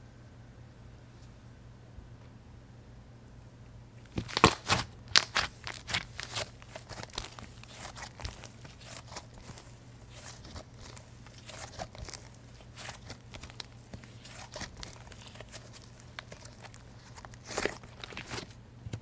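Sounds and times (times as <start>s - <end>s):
slime crackling pops: 4.1s - 18.4s.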